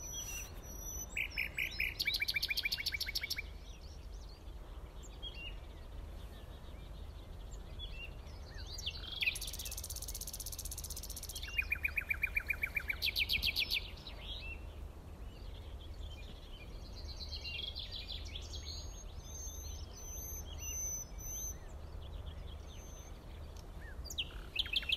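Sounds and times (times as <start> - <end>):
whistled bird notes: 0.0 - 3.5, 17.1 - 21.7
birds chirping and singing: 0.0 - 24.9.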